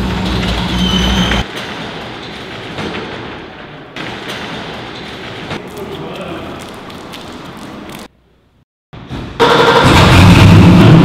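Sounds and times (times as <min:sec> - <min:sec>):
metal roll-up door rattling: 0:00.0 - 0:05.7
loud low hum: 0:09.4 - 0:11.0.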